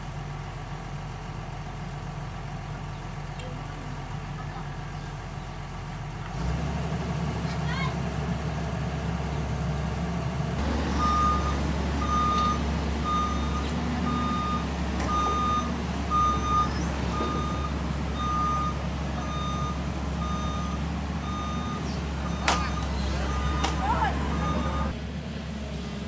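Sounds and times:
excavator diesel engine running: 0:00.0 - 0:26.0
warning alarm beeps: 0:10.8 - 0:24.9.

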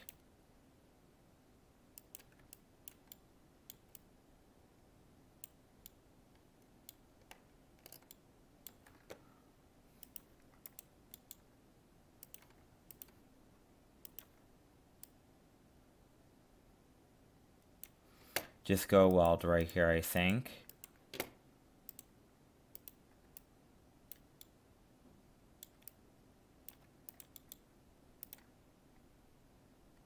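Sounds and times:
computer mouse clicks: 0:00.0 - 0:00.3, 0:02.0 - 0:04.1, 0:05.4 - 0:09.3, 0:10.0 - 0:11.5, 0:12.2 - 0:13.2, 0:14.0 - 0:15.2, 0:17.6 - 0:19.8, 0:20.6 - 0:23.5, 0:24.1 - 0:24.6, 0:25.6 - 0:26.0, 0:26.6 - 0:28.6
low steady hum: 0:00.0 - 0:30.0.

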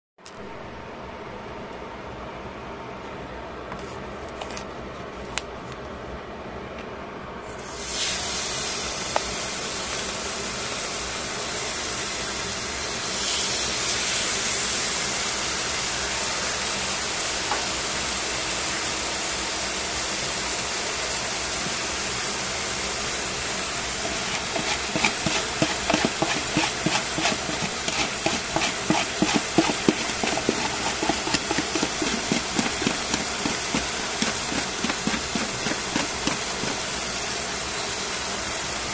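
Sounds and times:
meat sizzling in a frying pan: 0:13.0 - 0:15.8.

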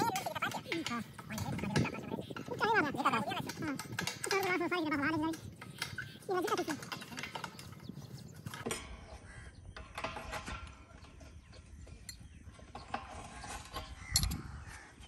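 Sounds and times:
wrench clicking on metal bolts: 0:14.1 - 0:14.4.

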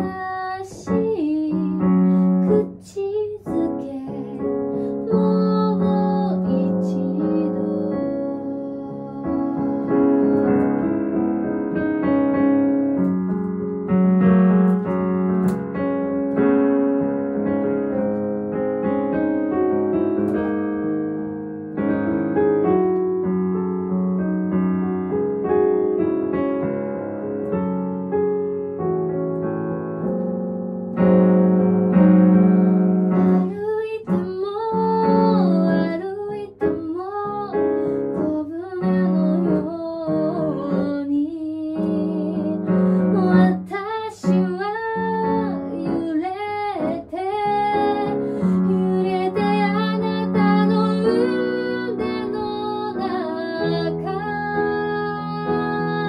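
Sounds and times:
woman singing: 0:00.0 - 0:11.3, 0:33.1 - 0:56.0
slow piano ballad: 0:00.0 - 0:56.0.

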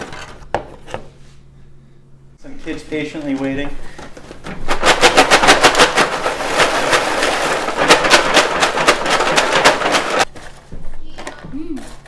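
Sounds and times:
popcorn rattling in foil tray: 0:04.6 - 0:11.2.

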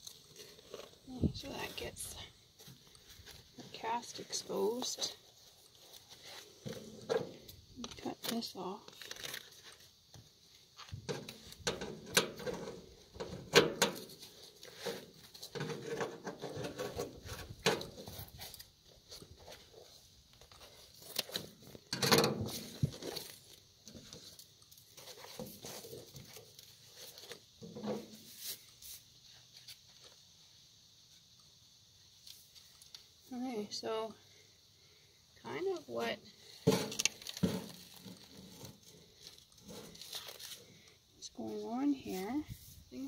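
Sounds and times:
tape and padding rustling: 0:02.6 - 0:30.2, 0:36.4 - 0:40.7.

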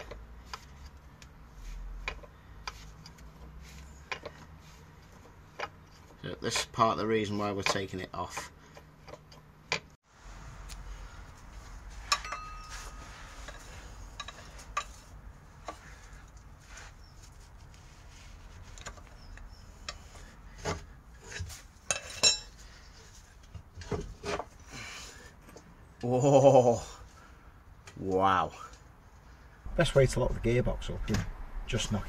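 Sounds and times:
metal clinks and scrapes: 0:11.1 - 0:24.7
ringing metal strike: 0:11.9 - 0:14.2.

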